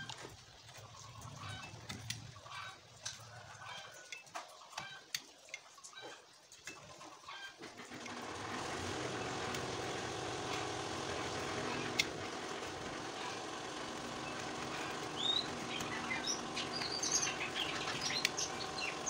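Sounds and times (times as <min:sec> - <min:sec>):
small engine running: 0:07.7 - 0:19.0
knife carving bamboo: 0:08.2 - 0:19.0.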